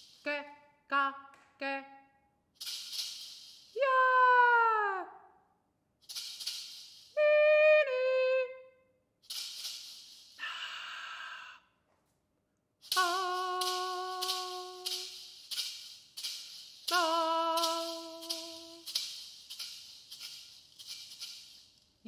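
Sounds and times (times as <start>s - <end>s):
woman singing: 0.2s - 2.0s, 3.8s - 5.1s, 7.2s - 8.8s, 12.9s - 15.2s, 16.9s - 18.9s
breathy hissing and whispering: 10.4s - 11.7s.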